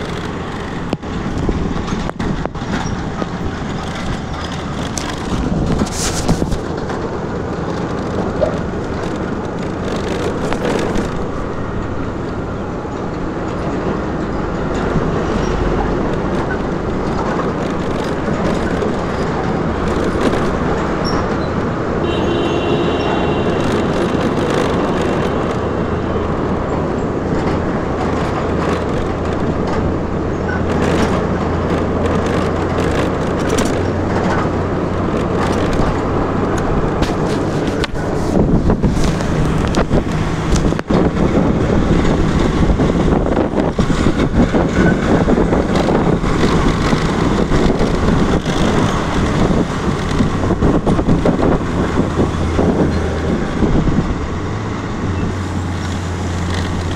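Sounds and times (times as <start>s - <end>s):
heavy traffic engines droning: 0.0s - 56.9s
short high-pitched tone: 22.0s - 26.2s.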